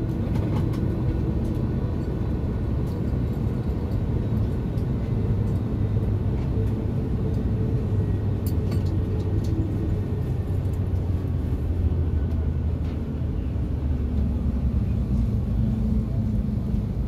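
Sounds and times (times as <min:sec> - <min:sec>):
airliner cabin rumble and hum: 0:00.0 - 0:17.0.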